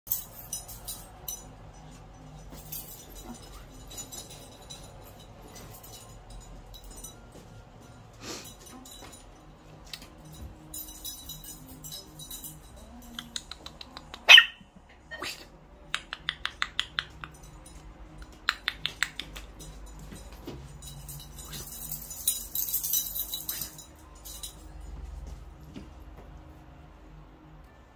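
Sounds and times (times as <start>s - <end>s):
rustling clatter: 0.1s - 13.2s, 19.5s - 25.9s
puppy barking: 14.2s - 14.7s.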